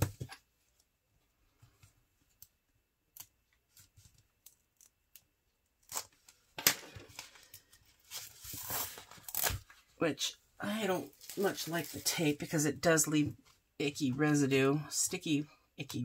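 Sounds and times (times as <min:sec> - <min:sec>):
plastic wrap rustling and tearing: 0:05.8 - 0:09.9, 0:10.9 - 0:12.5.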